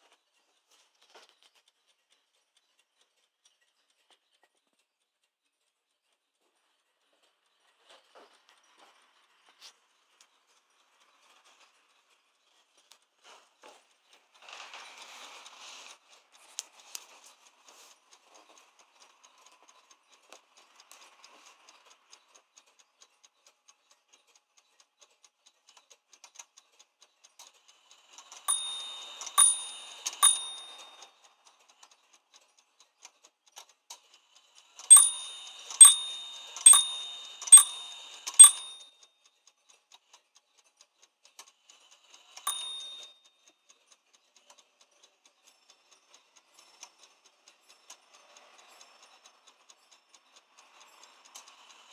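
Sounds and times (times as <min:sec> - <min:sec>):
clock ticking faintly: 0:16.2 - 0:34.2, 0:34.9 - 0:38.9, 0:39.7 - 0:51.9
clock striking on bells: 0:28.5 - 0:31.0, 0:34.9 - 0:38.8, 0:42.5 - 0:43.1.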